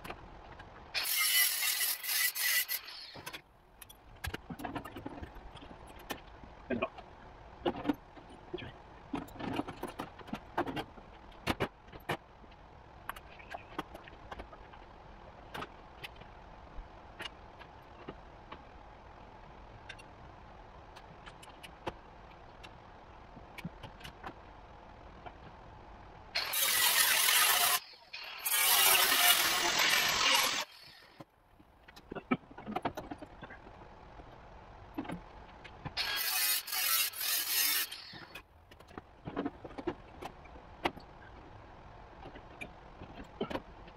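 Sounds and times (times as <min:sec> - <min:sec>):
angle grinder cutting metal: 0:01.0 - 0:03.2, 0:26.4 - 0:31.2, 0:36.0 - 0:38.3.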